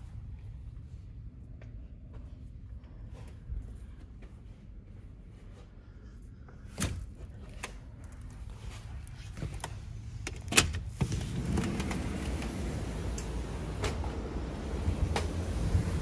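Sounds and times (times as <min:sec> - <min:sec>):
sliding door knocks and clunks: 0:10.8 - 0:16.0.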